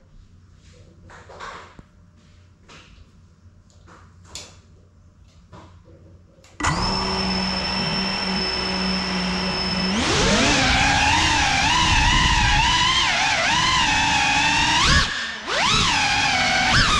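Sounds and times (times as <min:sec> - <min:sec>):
drone motors whining: 0:06.6 - 0:16.9.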